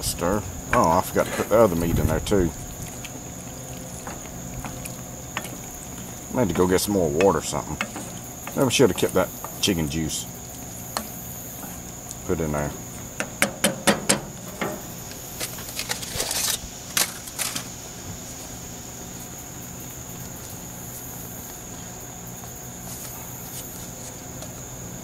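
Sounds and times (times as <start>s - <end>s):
high insect trill: 0.0s - 25.0s
wooden spoon knocking on saucepan: 13.1s - 14.9s.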